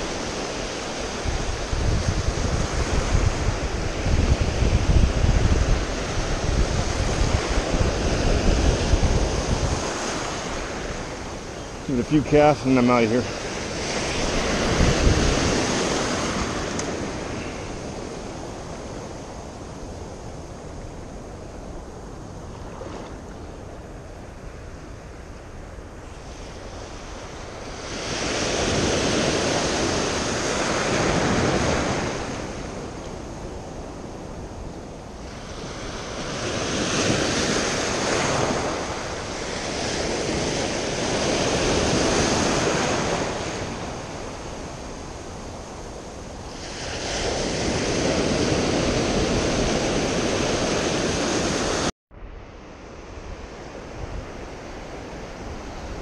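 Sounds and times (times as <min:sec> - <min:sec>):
ocean surf breaking: 0:00.0 - 0:51.9.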